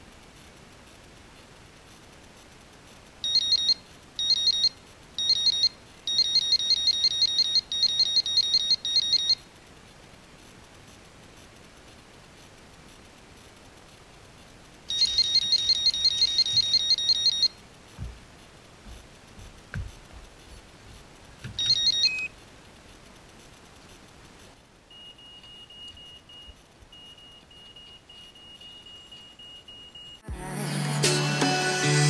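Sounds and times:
bite alarm beeping: 0:03.2 - 0:09.4, 0:14.9 - 0:17.6, 0:21.6 - 0:22.3, 0:24.9 - 0:30.2.

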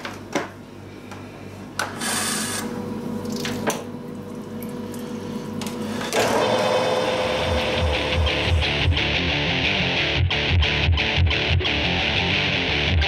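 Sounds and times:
splashing water: 0:03.2 - 0:05.1
lathe motor hum: 0:05.5 - 0:09.1
music: 0:06.4 - 0:13.0.

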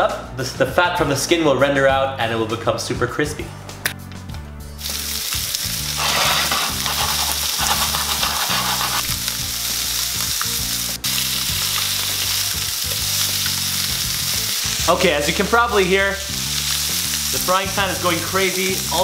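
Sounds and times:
chicken wings sizzling in pan: 0:04.8 - 0:19.0.

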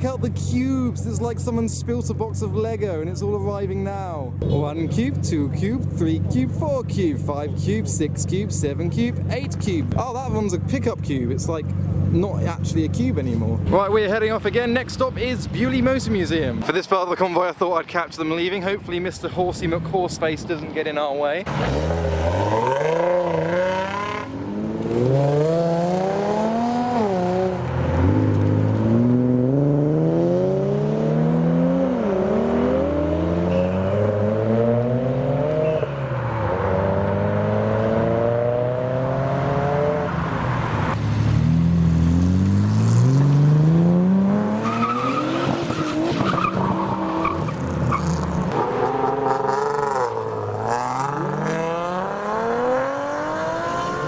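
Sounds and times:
sports cars accelerating past: 0:21.5 - 0:54.0.

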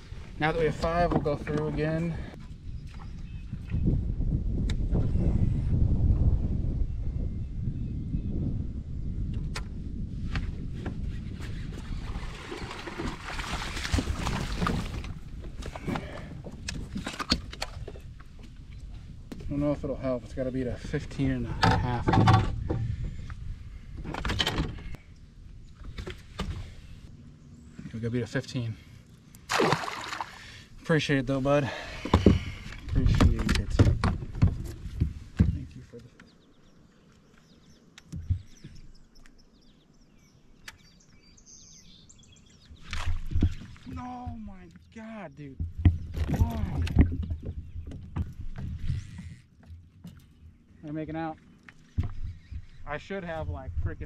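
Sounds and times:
water splashing: 0:12.1 - 0:15.8, 0:29.4 - 0:30.7
clicks and knocks in boat: 0:12.7 - 0:18.5, 0:21.6 - 0:23.0, 0:32.0 - 0:36.4, 0:45.6 - 0:50.6.

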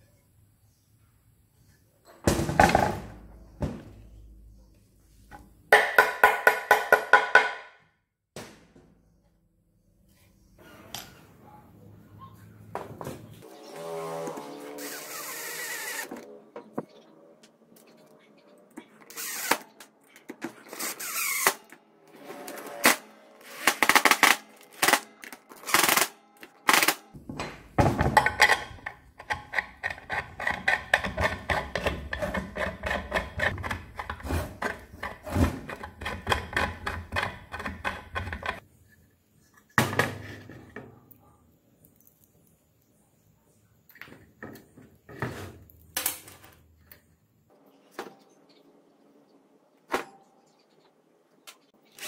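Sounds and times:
cordless drill driving screws: 0:14.2 - 0:16.2, 0:19.1 - 0:19.7.

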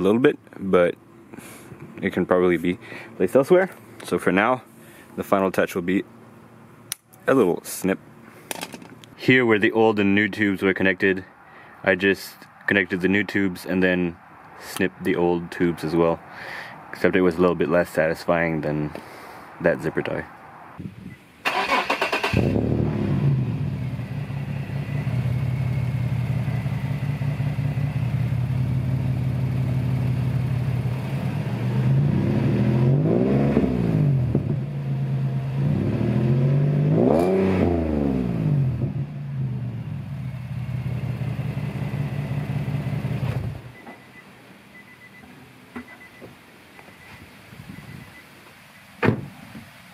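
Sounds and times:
car engine idling: 0:21.5 - 0:31.6, 0:39.1 - 0:44.8
car engine revving: 0:21.5 - 0:43.7.

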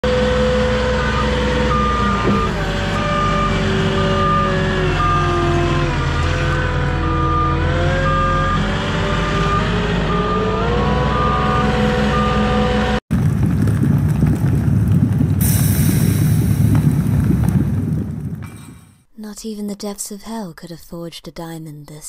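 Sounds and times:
truck reversing alarm beeps: 0:00.0 - 0:13.0
truck engine running: 0:00.0 - 0:19.0.

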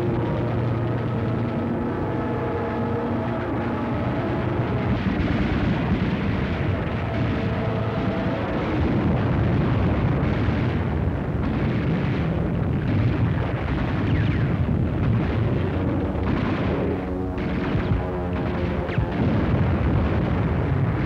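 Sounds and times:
explosions and gunfire rumble: 0:03.2 - 0:21.0
sharp gunshot reports: 0:11.4 - 0:21.0.

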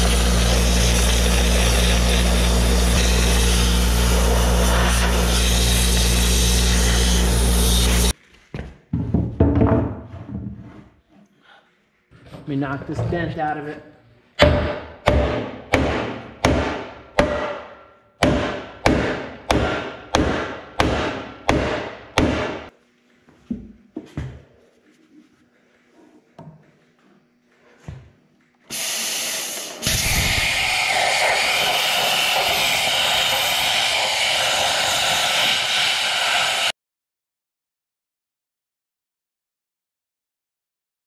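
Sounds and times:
plasma cutter hissing: 0:00.0 - 0:08.1, 0:28.7 - 0:36.7
hammer on metal: 0:14.4 - 0:22.7.

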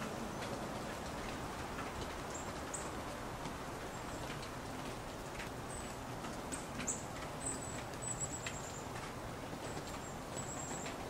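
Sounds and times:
faint light ticks: 0:00.0 - 0:11.0
steady background hiss: 0:00.0 - 0:11.0
songbirds high calls: 0:05.1 - 0:11.0.

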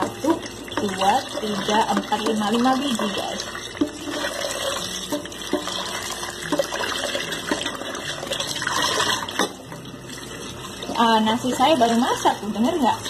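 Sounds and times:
tap running into bowl: 0:00.0 - 0:09.8.

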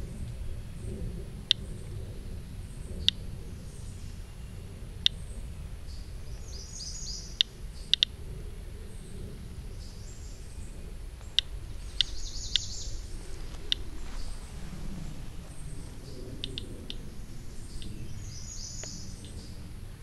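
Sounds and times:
birds chirping: 0:00.0 - 0:20.0
geiger counter clicking: 0:07.4 - 0:08.2, 0:13.7 - 0:13.9, 0:16.4 - 0:17.0.

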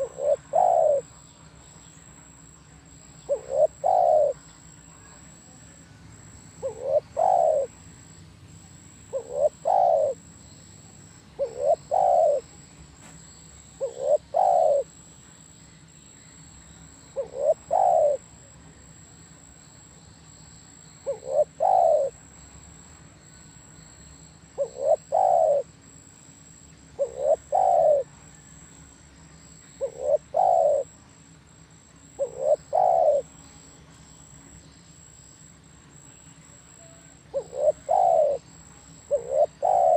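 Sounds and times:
dove cooing: 0:00.0 - 0:01.2, 0:03.2 - 0:04.5, 0:06.5 - 0:07.8, 0:09.0 - 0:10.3, 0:11.4 - 0:12.6, 0:13.7 - 0:15.0, 0:17.1 - 0:18.5, 0:21.0 - 0:22.3, 0:24.6 - 0:25.7, 0:27.0 - 0:28.4, 0:29.8 - 0:31.0, 0:32.0 - 0:33.3, 0:36.6 - 0:39.9.

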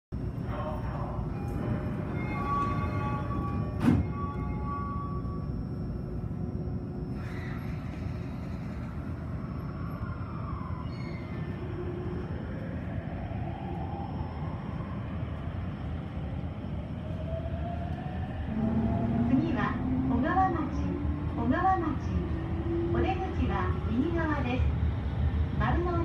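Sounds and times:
traction motor whine: 0:01.5 - 0:12.2
train wheels rumbling on rails: 0:07.0 - 0:13.8.

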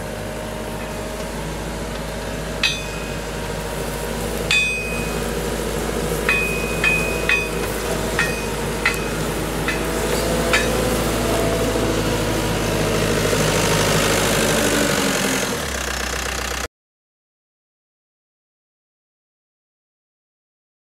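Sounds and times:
diesel engine running: 0:00.0 - 0:16.7.

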